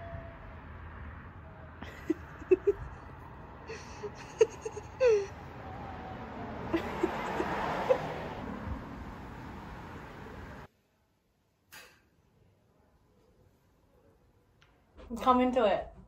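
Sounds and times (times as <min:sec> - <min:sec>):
rushing noise: 0:02.7 - 0:10.7.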